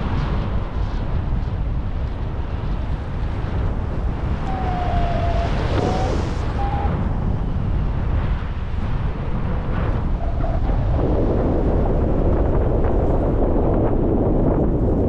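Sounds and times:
wind buffeting microphone: 0.0s - 15.0s
faint falling tones: 4.4s - 7.0s.

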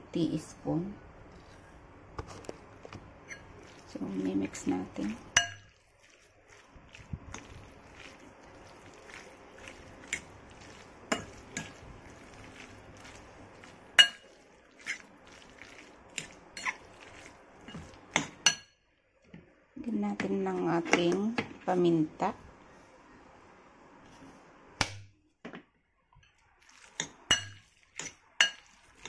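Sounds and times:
meat squelching in a bowl: 2.3s - 18.6s, 26.2s - 29.0s
fork clinking against bowl: 5.4s - 5.7s, 14.0s - 15.0s, 27.3s - 28.8s.

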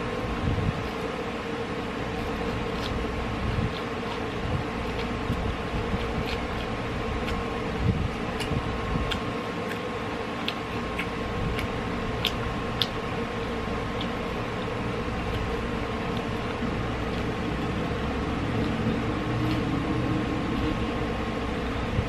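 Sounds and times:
steady background hum: 0.0s - 22.0s
chewing mouth sounds: 2.0s - 20.9s.

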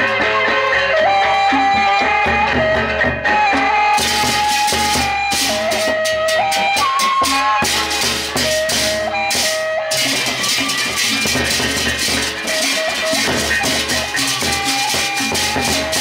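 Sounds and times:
drums and gongs: 0.0s - 16.0s
held melody line: 0.0s - 16.0s
clashing cymbals: 4.0s - 16.0s.

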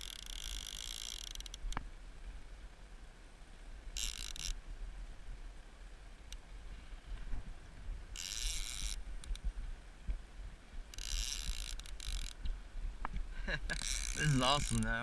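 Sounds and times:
fishing reel buzzing: 0.0s - 1.7s, 4.0s - 4.6s, 8.1s - 9.4s, 10.9s - 12.4s, 13.7s - 15.0s
wind rumble on microphone: 6.5s - 15.0s.

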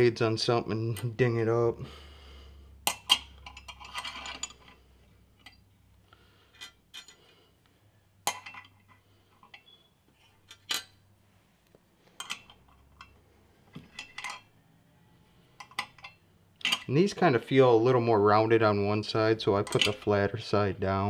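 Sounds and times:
metal parts clinking: 2.8s - 5.8s, 6.5s - 7.3s, 8.2s - 11.0s, 12.1s - 14.6s, 15.6s - 17.0s, 19.6s - 20.1s.

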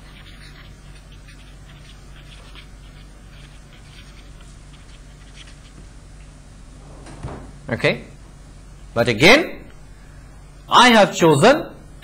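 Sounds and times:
handwriting scratching: 0.0s - 5.8s
low electrical hum: 0.0s - 12.0s.

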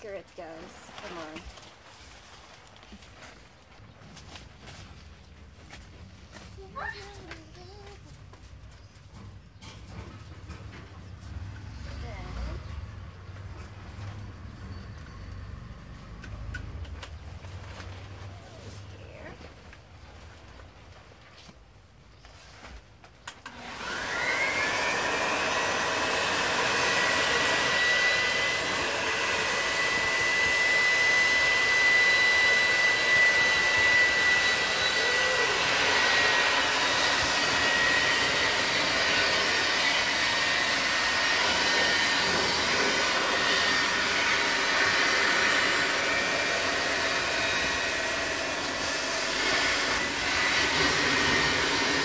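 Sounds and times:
electric air pump whining: 23.2s - 52.0s.

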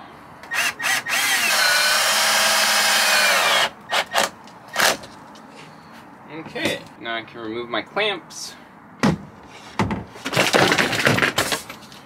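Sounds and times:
cordless drill driving screws: 0.5s - 5.0s.

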